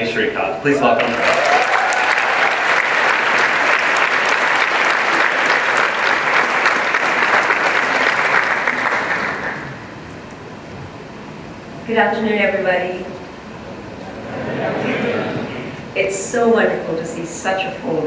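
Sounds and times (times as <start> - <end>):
audience applauding: 0.9 - 9.9.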